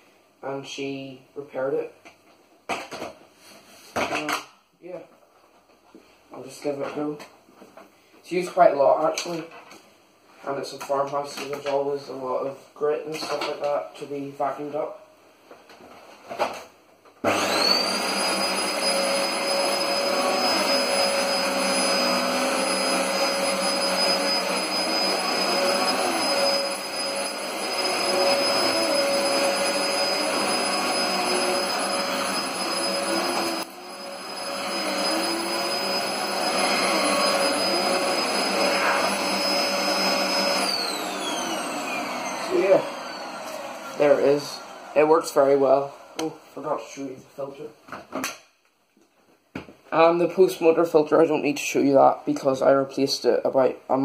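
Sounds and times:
vacuum cleaner motor whine: 17.2 - 46.3.

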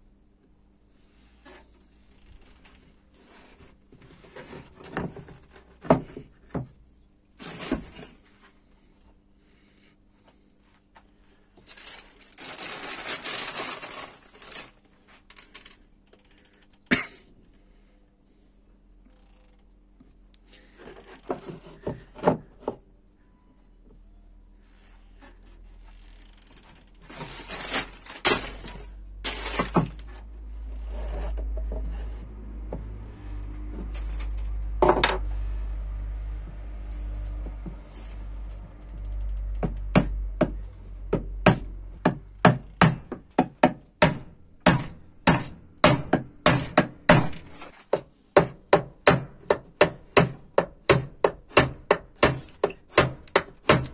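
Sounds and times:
hammer tapping a nail: 39.6 - 53.9.

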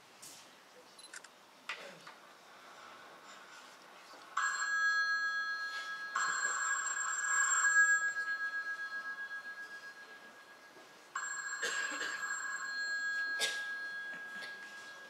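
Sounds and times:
telephone ringtone ringing: 4.4 - 15.0.

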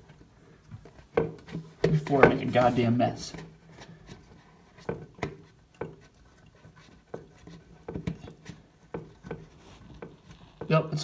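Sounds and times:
rubbing: 3.6 - 10.7.

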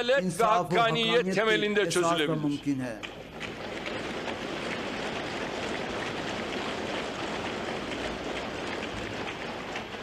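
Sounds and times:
audience applauding: 3.0 - 10.0.

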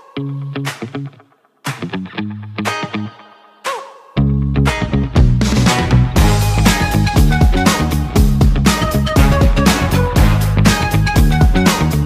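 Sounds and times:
guitar: 0.0 - 12.0
bass line: 4.2 - 12.0
steady drum beat: 5.2 - 12.0.

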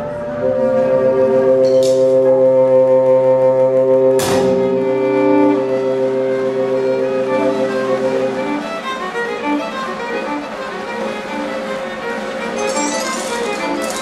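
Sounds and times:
orchestra holding a chord: 0.0 - 14.0
sharp percussion hit: 4.2 - 5.5.

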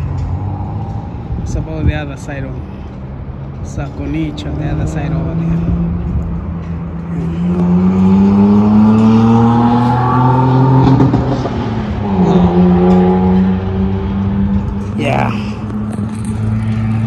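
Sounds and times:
engine accelerating hard: 4.2 - 17.0.

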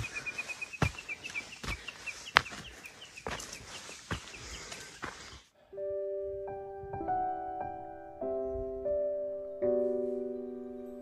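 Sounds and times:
bird chirping: 0.0 - 5.5, 9.2 - 11.0
footsteps on dirt trail: 0.0 - 5.5
soft piano music: 5.7 - 11.0.

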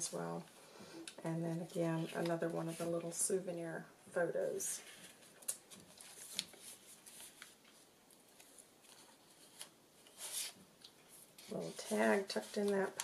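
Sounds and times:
paper rustling: 4.8 - 13.0
small clicks of paper cards: 5.3 - 11.5.

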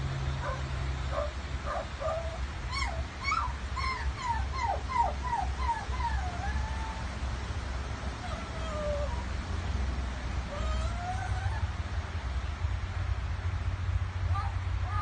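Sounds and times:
magpie mimicking dog whines: 2.0 - 7.0.

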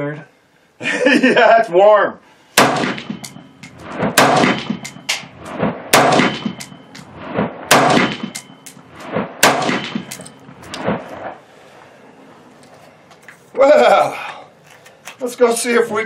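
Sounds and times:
quieter cracks: 2.6 - 11.4
rifle shots: 2.6 - 11.4.

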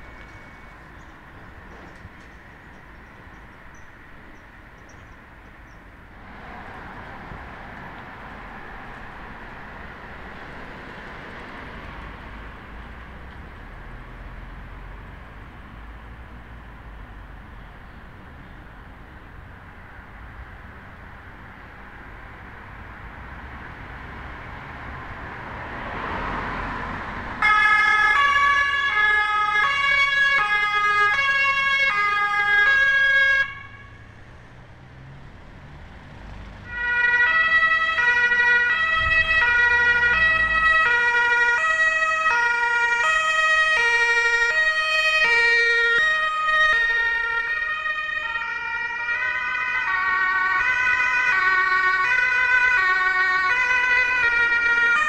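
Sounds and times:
two-tone siren: 0.0 - 1.1, 27.4 - 34.1, 36.6 - 55.0
vehicle and tyre noise: 0.0 - 55.0.

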